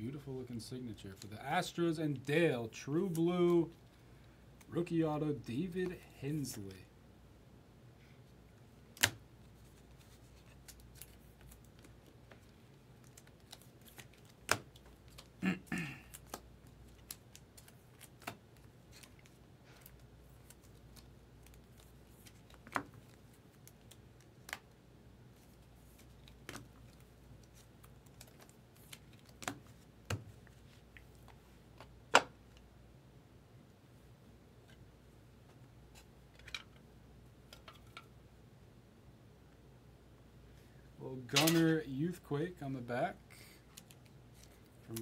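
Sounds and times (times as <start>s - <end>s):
rustling clicks of cards: 25.5s - 32.3s.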